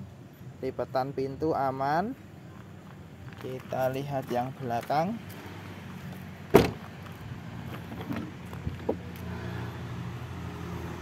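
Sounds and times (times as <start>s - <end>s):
car door latch clack: 6.5s - 6.8s.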